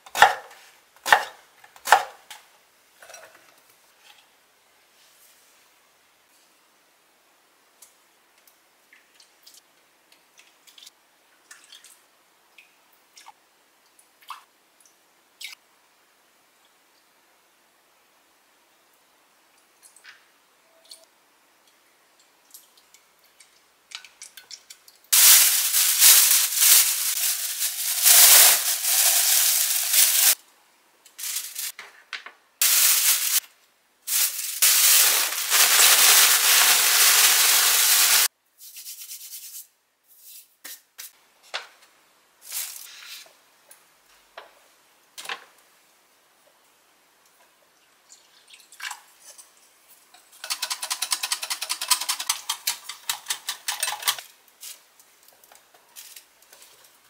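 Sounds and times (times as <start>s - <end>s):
plastic bag rustling: 25.2s - 30.4s, 31.2s - 31.7s, 32.6s - 33.4s, 34.1s - 38.3s, 42.4s - 42.9s.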